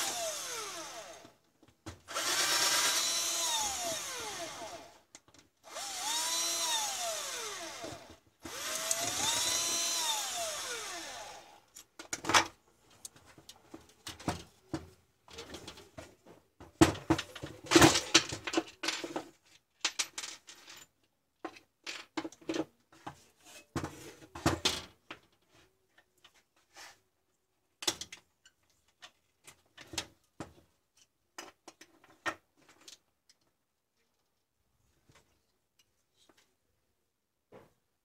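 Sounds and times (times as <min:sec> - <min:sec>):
plastic clacks and scrapes: 0:12.0 - 0:20.8.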